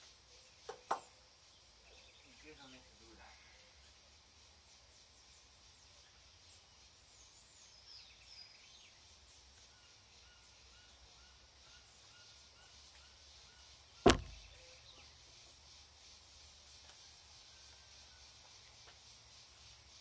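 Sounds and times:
faint birds chirping: 0:00.0 - 0:20.0
sharp knock with ringing tail: 0:14.1 - 0:14.6.

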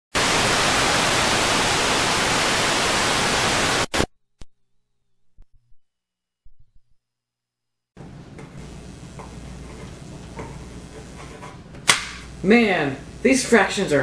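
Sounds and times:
tv static hiss: 0:00.1 - 0:04.1, 0:08.0 - 0:14.0.

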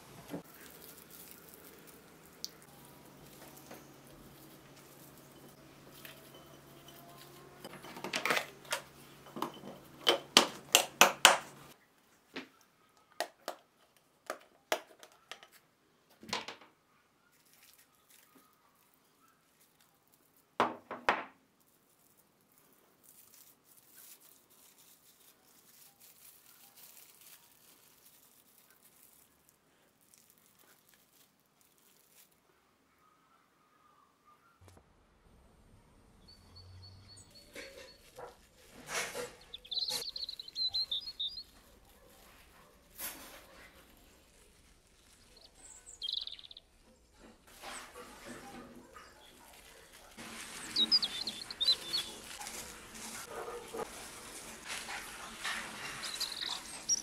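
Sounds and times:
cling film crinkling: 0:00.0 - 0:11.8, 0:17.3 - 0:20.6, 0:21.5 - 0:32.6, 0:37.5 - 0:57.0.

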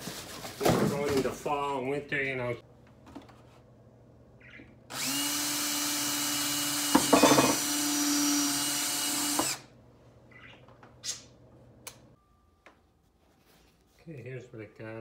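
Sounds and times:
cordless drill boring through plastic: 0:04.9 - 0:09.7.

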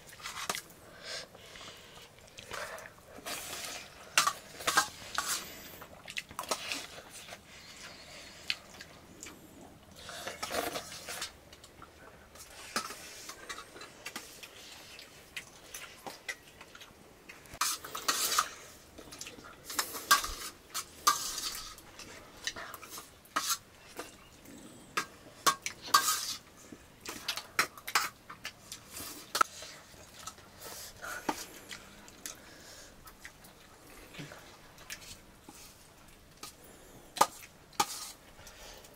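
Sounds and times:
spoons scraping and clinking plates: 0:03.2 - 0:05.8, 0:17.6 - 0:24.3, 0:24.9 - 0:26.4.

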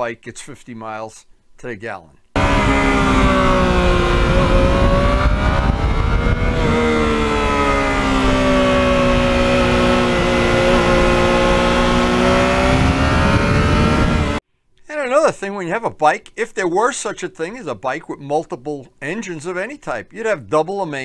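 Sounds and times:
motorcycle engine running: 0:02.4 - 0:14.4.

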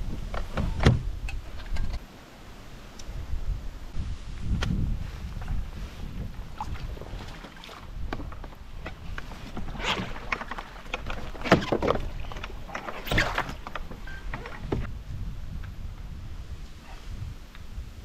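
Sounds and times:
gear knocking and rustling: 0:07.9 - 0:14.9.

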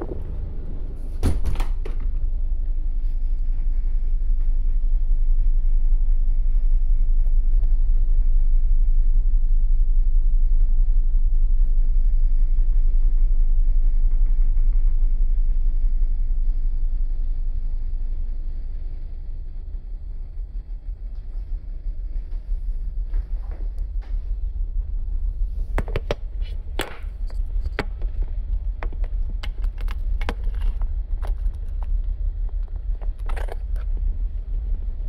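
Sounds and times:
ferry engines rumbling: 0:00.0 - 0:07.5.

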